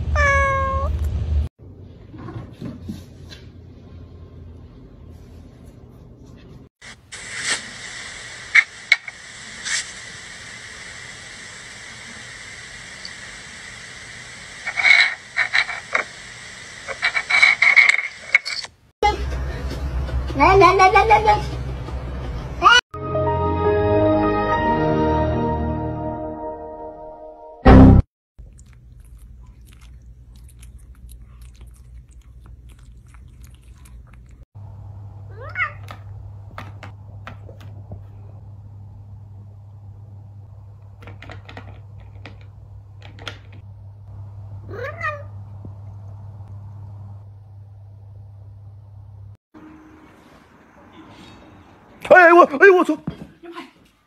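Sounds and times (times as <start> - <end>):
recording hiss: 6.8 - 17.4
kittens clicking and smacking mouths: 28.4 - 34.4
steady low hum: 43.7 - 51.7.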